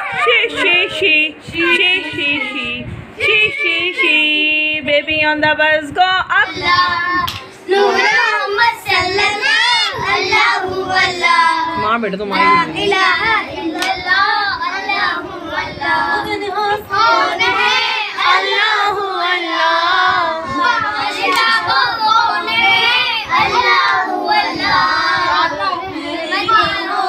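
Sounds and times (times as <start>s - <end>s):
children singing a chant: 6.4s - 11.8s, 12.4s - 27.0s
hand clapping: 7.2s - 7.5s, 13.7s - 14.0s, 21.2s - 21.7s.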